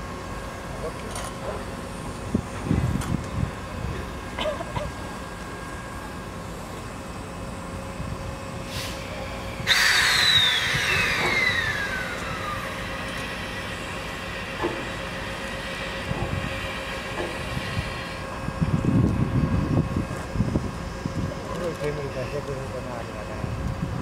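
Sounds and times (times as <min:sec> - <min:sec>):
steam locomotive hissing: 0:00.0 - 0:21.4
whistling tone sliding down: 0:09.7 - 0:12.6.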